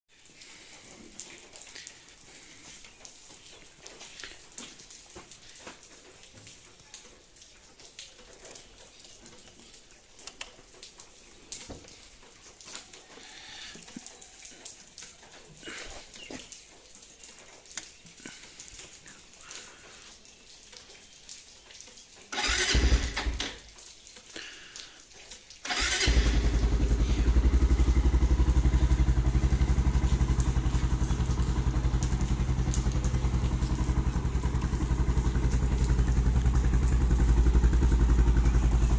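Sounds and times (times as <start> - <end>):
starter motor cranking: 22.3 - 23.6, 25.6 - 27.8
motorcycle engine idling: 22.4 - 23.5, 25.7 - 38.9.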